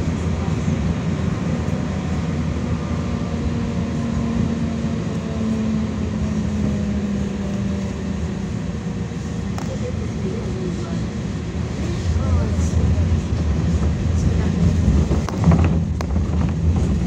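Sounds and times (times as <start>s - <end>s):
low hum from tram car: 0.0s - 17.0s
tram wheels rumbling on rails: 0.0s - 17.0s.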